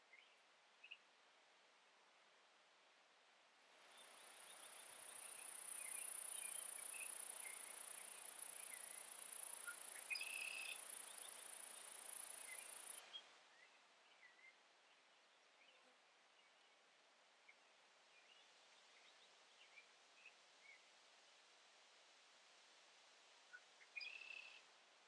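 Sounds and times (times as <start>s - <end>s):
faint bird chirps: 0.0s - 1.1s, 3.8s - 16.8s, 23.5s - 24.7s
high-pitched insect drone: 4.8s - 13.0s.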